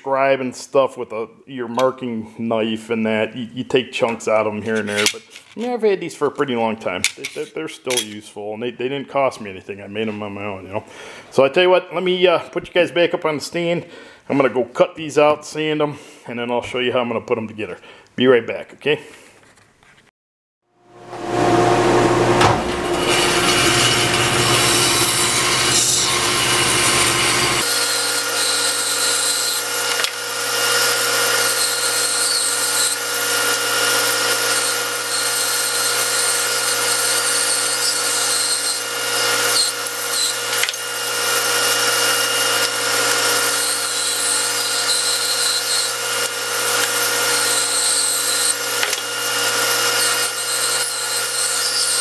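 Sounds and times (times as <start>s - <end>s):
band saw cutting wood: 21.0s - 52.0s.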